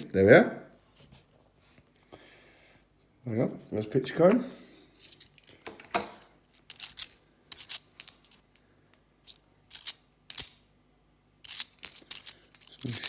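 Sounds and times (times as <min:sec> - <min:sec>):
coins clinking: 0:06.5 - 0:08.4, 0:09.2 - 0:10.6, 0:11.4 - 0:13.0.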